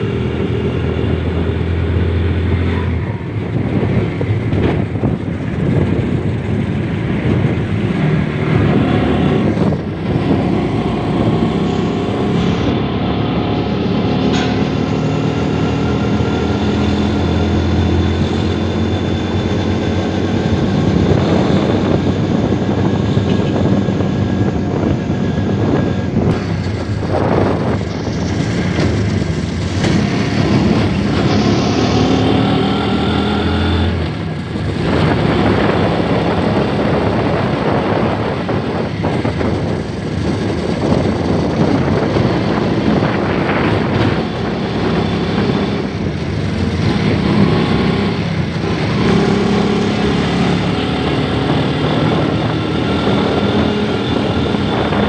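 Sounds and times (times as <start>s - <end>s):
motorcycle engine running: 0.0s - 55.0s
traffic passing: 0.0s - 55.0s.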